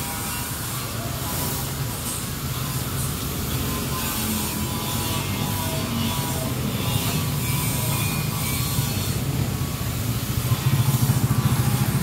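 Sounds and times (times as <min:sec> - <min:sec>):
excavator diesel engine running: 0:05.8 - 0:12.0.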